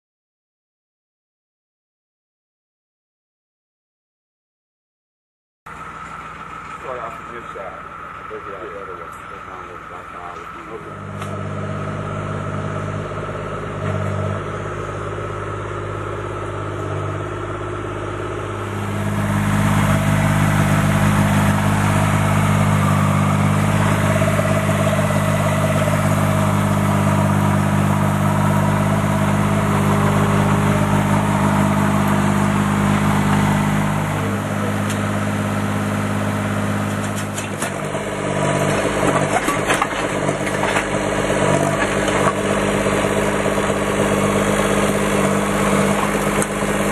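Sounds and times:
excavator engine running: 5.7 - 46.9
hydraulic breaker hammering concrete: 36.9 - 46.9.

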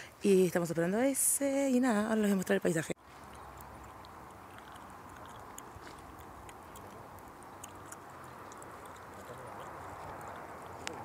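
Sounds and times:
outdoor background hiss: 0.0 - 11.0
light clicks and ticks: 3.3 - 11.0.

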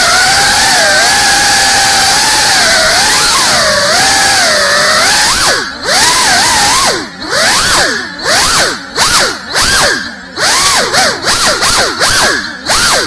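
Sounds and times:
drone motors whining: 0.0 - 13.0.

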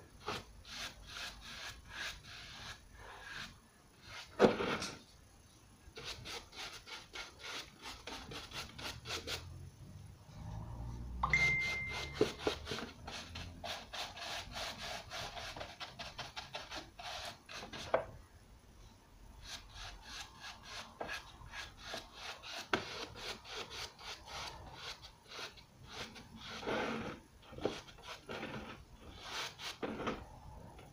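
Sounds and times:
short high tone: 11.2 - 12.3
paintbrush scrubbing lampshade: 11.8 - 17.9, 19.4 - 30.2.

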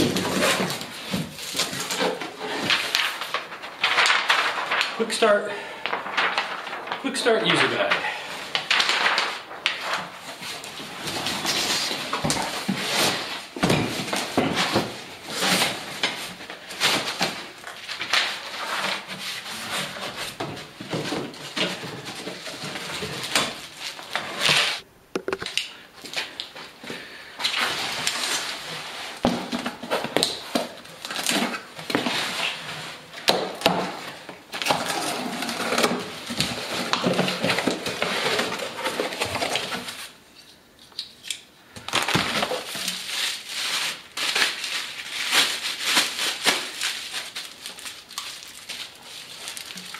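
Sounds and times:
plastic wrap crinkling: 0.0 - 26.8, 41.7 - 49.9.

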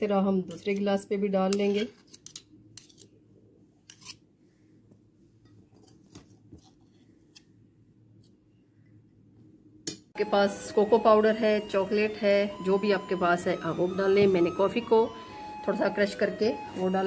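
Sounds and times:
low room hum: 0.0 - 10.2.

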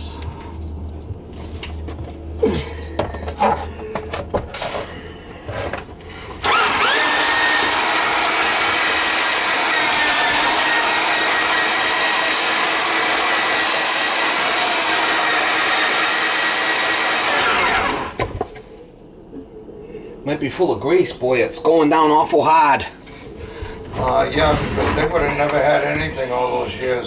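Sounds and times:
drain snake motor whining: 6.4 - 18.3.

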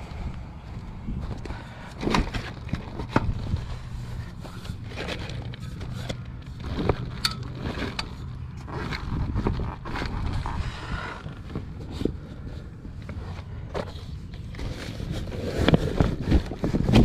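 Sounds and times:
metal pool frame parts handled: 2.0 - 8.9.

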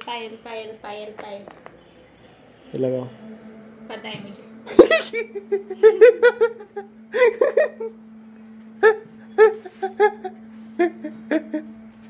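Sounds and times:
steady low hum: 0.0 - 12.0
woman laughing and giggling: 4.7 - 8.0, 8.8 - 11.7.

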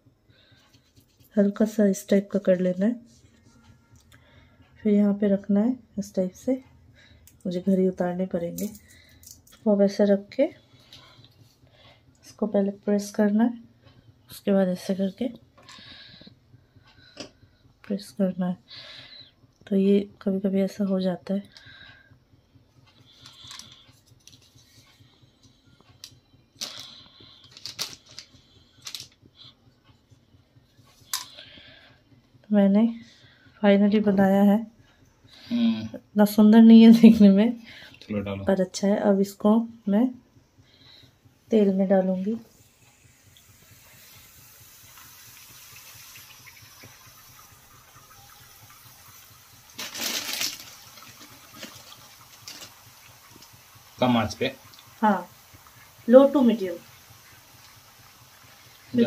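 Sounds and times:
food sizzling in hot oil: 42.0 - 59.0.

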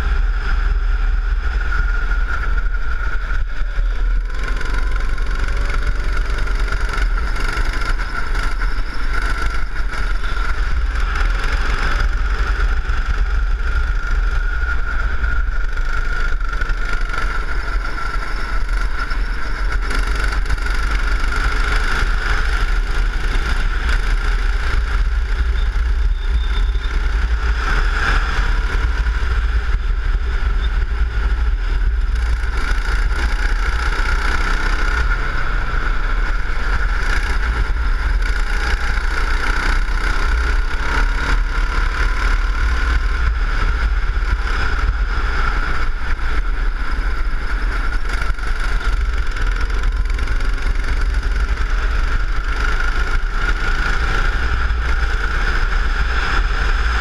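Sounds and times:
go-kart engine running: 0.0 - 57.0
wind rumble on microphone: 0.0 - 57.0.

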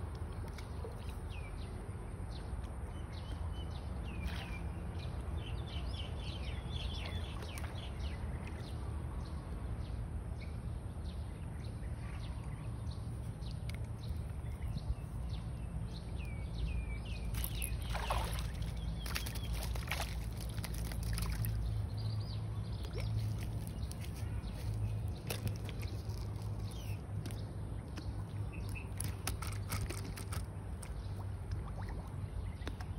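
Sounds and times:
small birds chirping: 0.2 - 32.9
fish splashing at water surface: 17.2 - 21.9.

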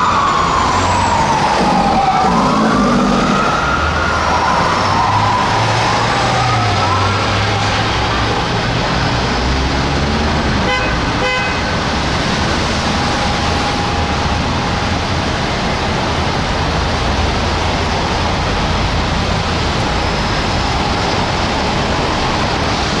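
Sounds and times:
street traffic noise: 0.0 - 23.0
car horn blasts: 10.6 - 11.7.

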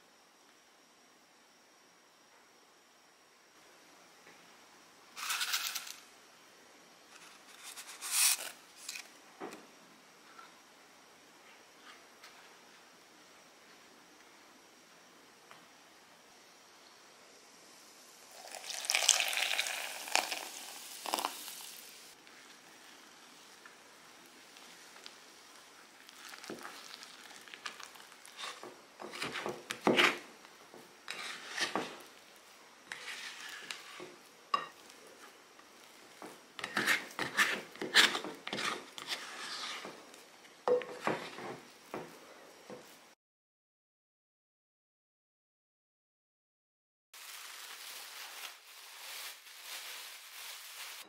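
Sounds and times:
water poured onto flour: 18.2 - 22.0, 26.0 - 28.4
spatula scraping dough in bowl: 28.2 - 30.2, 31.1 - 32.1, 32.9 - 34.1, 36.6 - 40.0.

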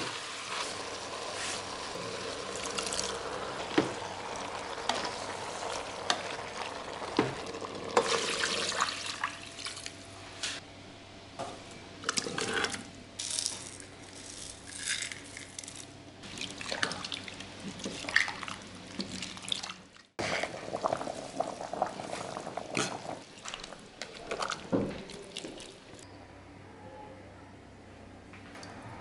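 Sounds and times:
liquid sloshing: 16.3 - 26.0.

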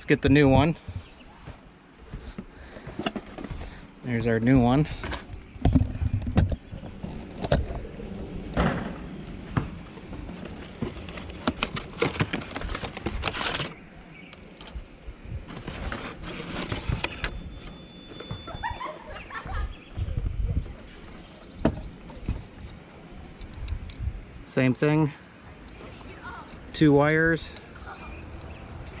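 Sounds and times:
cardboard packaging crinkling: 10.4 - 14.7, 15.4 - 17.3.

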